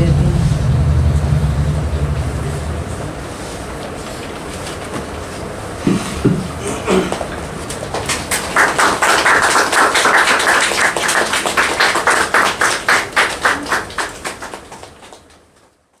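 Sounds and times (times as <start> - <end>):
group clapping in rhythm: 6.3 - 15.8.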